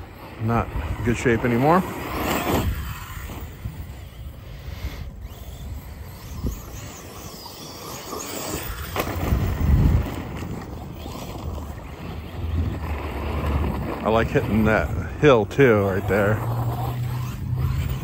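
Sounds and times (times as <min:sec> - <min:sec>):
rc car electric motor whining: 0:00.0 - 0:18.0
tyres rolling over gravel: 0:07.0 - 0:18.0.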